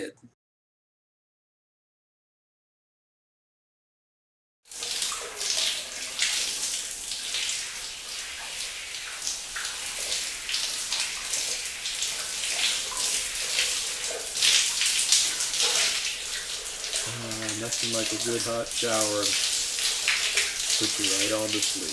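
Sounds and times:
shower water spraying: 4.7s - 21.9s.

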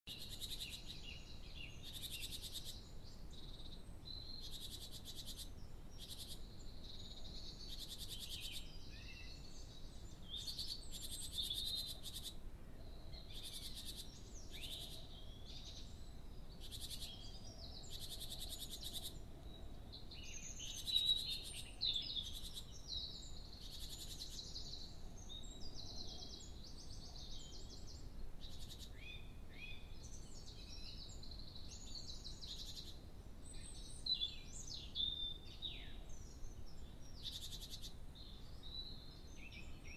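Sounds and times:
songbirds singing: 0.0s - 39.9s
faint steady hiss: 0.1s - 39.9s.

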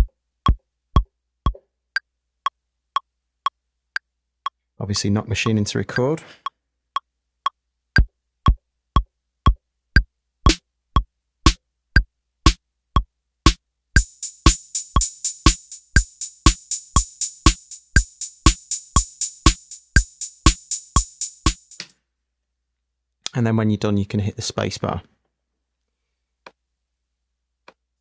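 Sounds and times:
deep kick drum: 0.0s - 1.6s
closed hi-hat: 13.5s - 21.9s.

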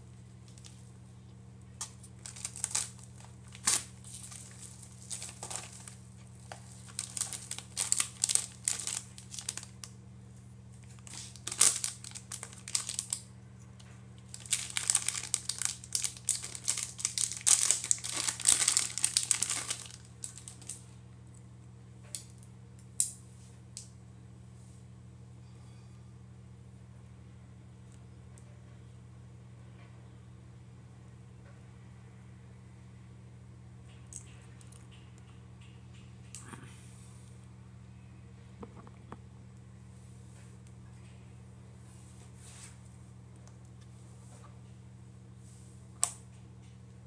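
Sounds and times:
packaging crinkling and rustling: 1.8s - 10.0s, 10.8s - 13.3s, 14.2s - 20.9s.

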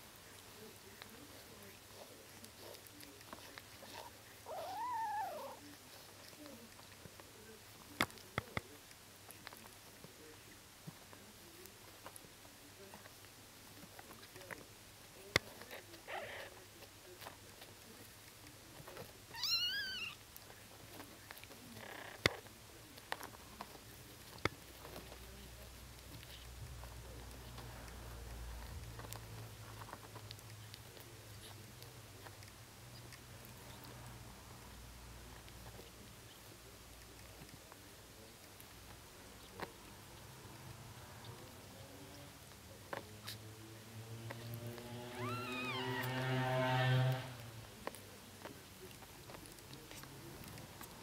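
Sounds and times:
kitten mewing: 4.5s - 5.6s, 19.3s - 20.2s, 45.1s - 46.1s.

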